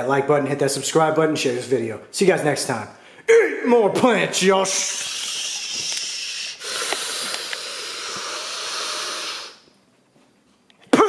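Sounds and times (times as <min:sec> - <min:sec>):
steady hissing: 0:04.6 - 0:09.9.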